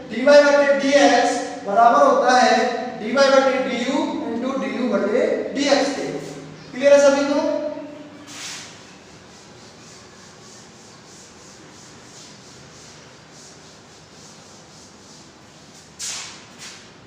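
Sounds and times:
duster rubbing on blackboard: 0:08.3 - 0:16.9.

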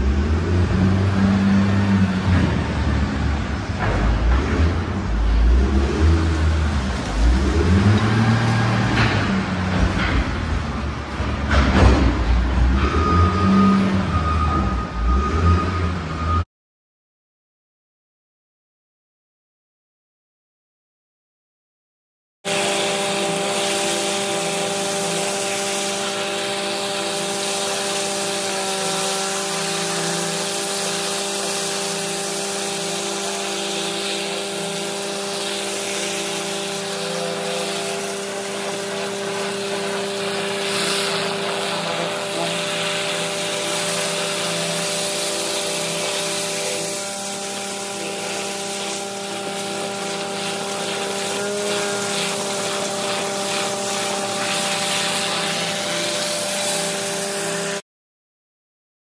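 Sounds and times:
pressure water blasting gravel: 0:00.1 - 0:12.2, 0:22.5 - 0:57.8
machine humming with whine: 0:22.5 - 0:57.8.

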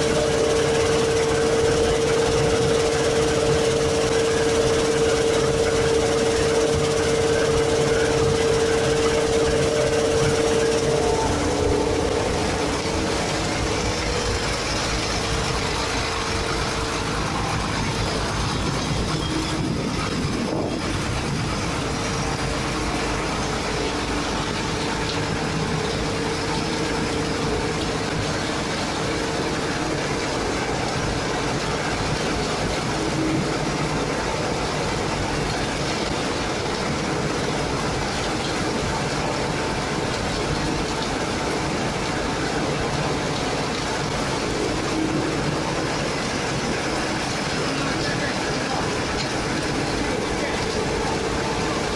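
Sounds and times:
machine hum: 0:00.0 - 0:51.9
machinery running: 0:00.0 - 0:51.9.

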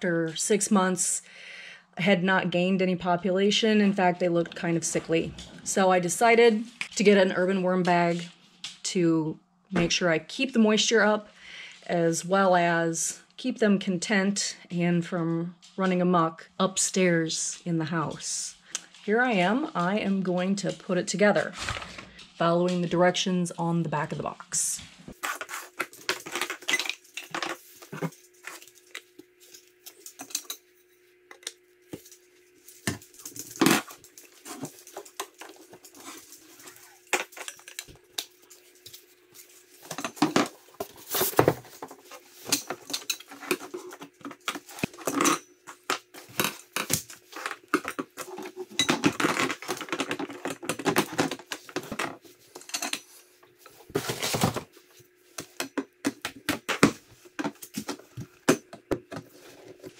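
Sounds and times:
plastic parts clicking and clattering: 0:39.9 - 0:53.1.

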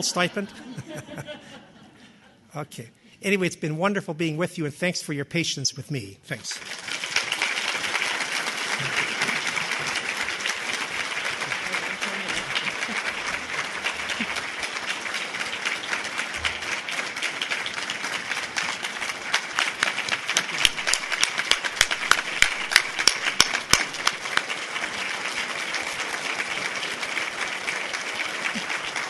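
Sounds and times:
audience applauding: 0:06.5 - 0:29.0
loud single claps close by: 0:20.4 - 0:24.5.

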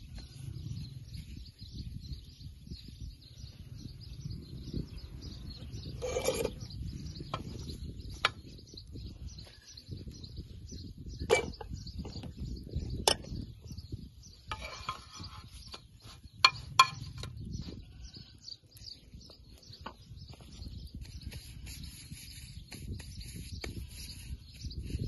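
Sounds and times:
birds chirping: 0:00.0 - 0:25.0
metal spoon scraping frying pan: 0:05.7 - 0:07.6, 0:11.2 - 0:11.8, 0:14.5 - 0:15.9.

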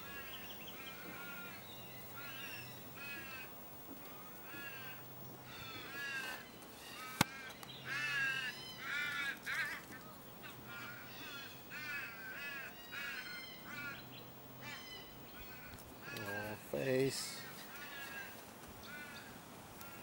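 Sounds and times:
crow cawing: 0:02.2 - 0:03.5, 0:04.4 - 0:14.0, 0:14.6 - 0:16.6, 0:17.3 - 0:20.0.

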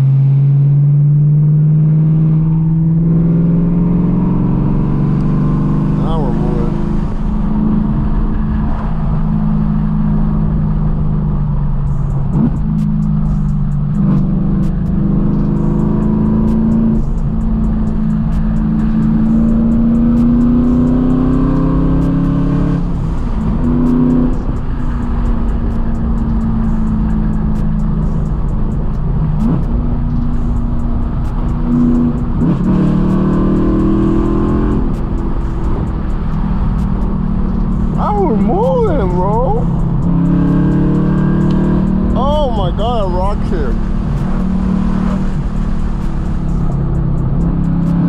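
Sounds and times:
car exhaust accelerating: 0:00.0 - 0:48.0.

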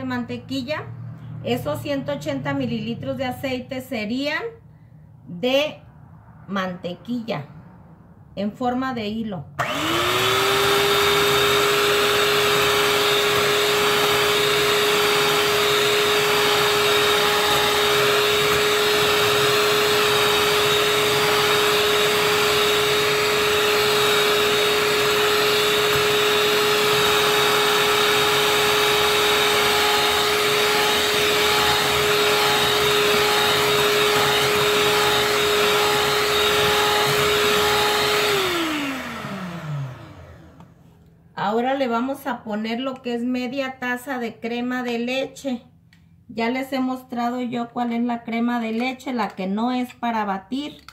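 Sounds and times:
electric hand mixer whirring: 0:09.6 - 0:40.8.

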